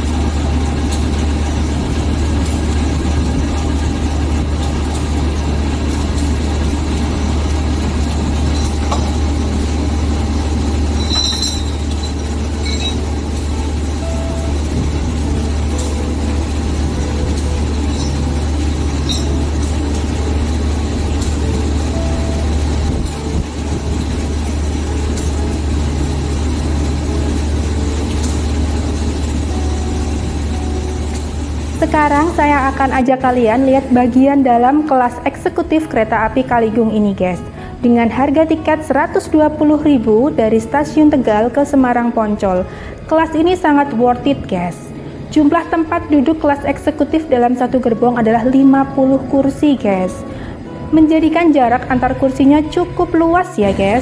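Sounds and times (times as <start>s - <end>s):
diesel locomotive idling: 0.0s - 54.0s.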